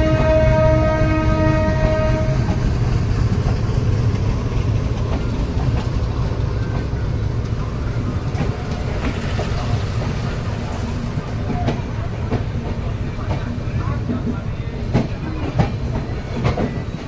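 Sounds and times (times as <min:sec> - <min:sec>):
train horn: 0:00.0 - 0:02.6
train rumbling: 0:00.0 - 0:17.0.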